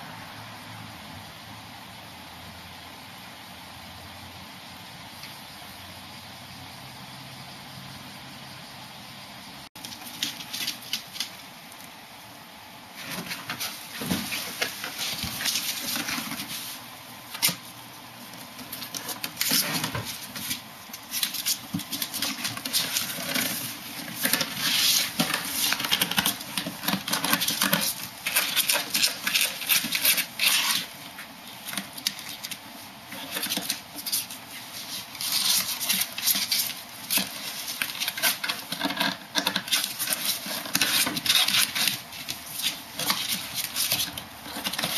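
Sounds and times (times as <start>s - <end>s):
cardboard scraping and rustling: 9.8s - 11.4s, 12.9s - 44.9s.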